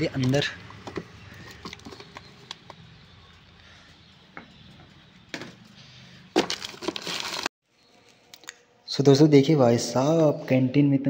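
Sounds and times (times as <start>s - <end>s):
loud rustling and clatter: 6.4s - 7.5s.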